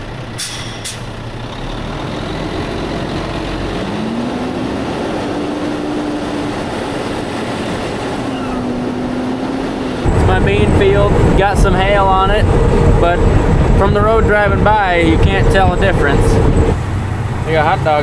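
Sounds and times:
truck engine pulling away: 0.0s - 18.0s
wind and road noise: 0.0s - 18.0s.

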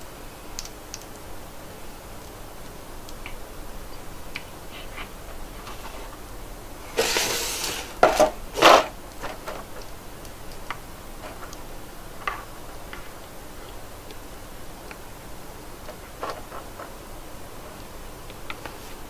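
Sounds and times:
cardboard box scraping rustle: 6.9s - 8.9s.

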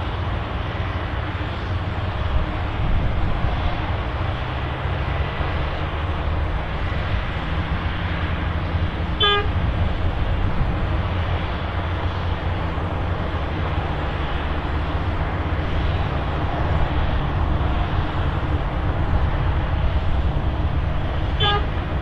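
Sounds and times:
short horn toot: 9.2s - 9.6s, 21.4s - 21.7s.

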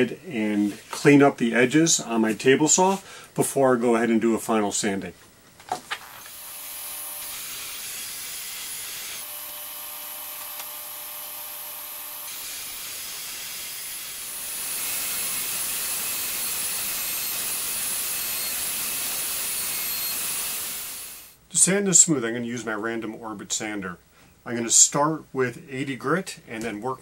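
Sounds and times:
table saw ripping wood: 6.1s - 21.3s
router whirring with high whine: 6.2s - 21.4s.

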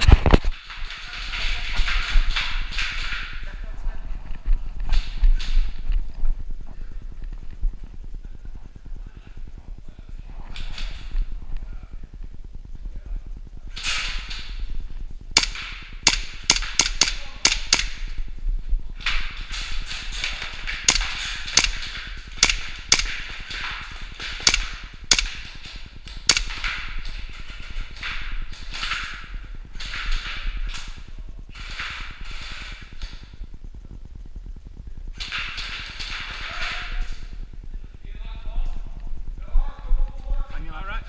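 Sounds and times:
airsoft gun shots: 15.4s - 18.1s, 20.1s - 27.1s.

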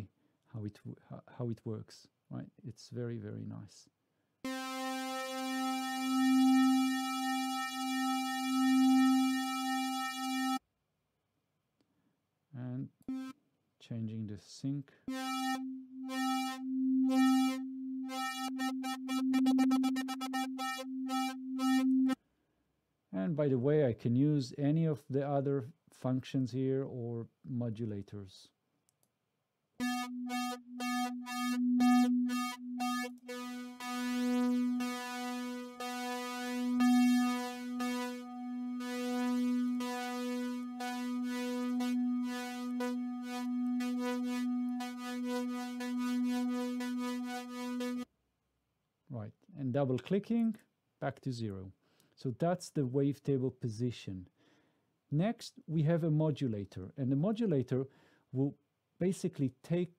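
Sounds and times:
synth note with pulsing overtones: 4.5s - 10.6s, 13.1s - 13.3s, 15.1s - 22.2s, 29.8s - 48.0s.

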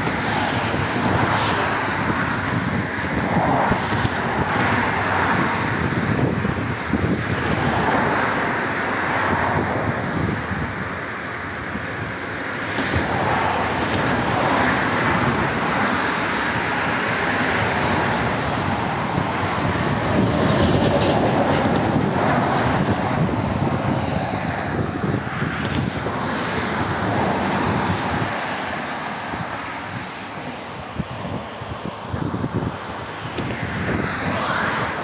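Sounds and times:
vehicle passing: 13.0s - 35.0s.

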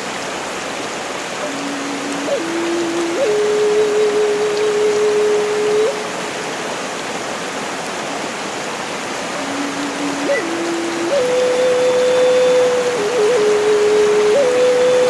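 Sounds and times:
mountain stream rushing over boulders: 0.0s - 15.0s
slow melody of long held notes: 1.4s - 6.3s, 9.3s - 15.0s.

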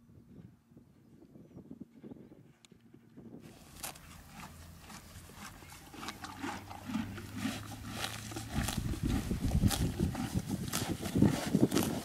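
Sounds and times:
horse chewing: 3.5s - 12.0s
horse tearing grass: 3.5s - 12.0s.

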